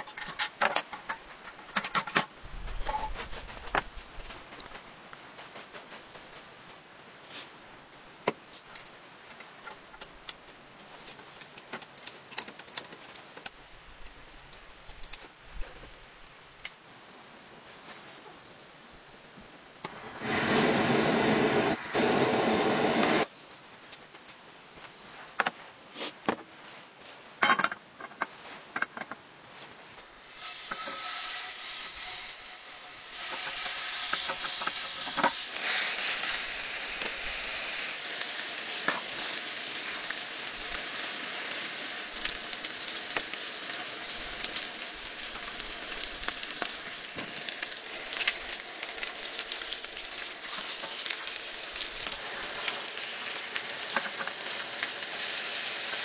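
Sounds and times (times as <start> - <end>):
gas stove hiss: 13.7 - 23.3, 30.1 - 56.0
meat sizzling in a frying pan: 19.8 - 23.3, 30.2 - 56.0.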